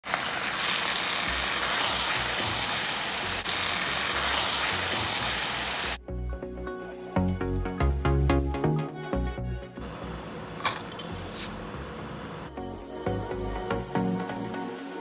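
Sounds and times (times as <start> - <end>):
food sizzling in a wok: 0.0 - 6.0
music: 6.0 - 9.9, 12.5 - 15.0.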